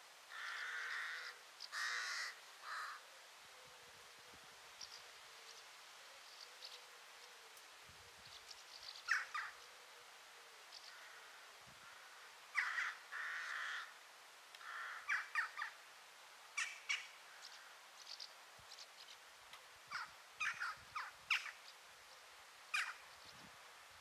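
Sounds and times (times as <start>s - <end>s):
faint steady hiss: 0.0s - 24.0s
birds calling: 0.3s - 3.0s, 8.2s - 9.8s, 10.7s - 13.9s, 14.6s - 15.8s, 16.6s - 23.5s.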